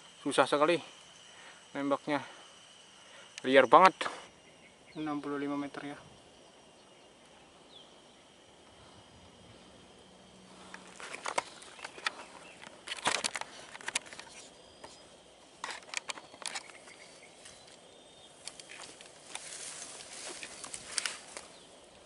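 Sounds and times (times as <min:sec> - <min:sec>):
rustling in dry grass: 0:08.3 - 0:22.0
camera handling clicks: 0:10.7 - 0:15.0.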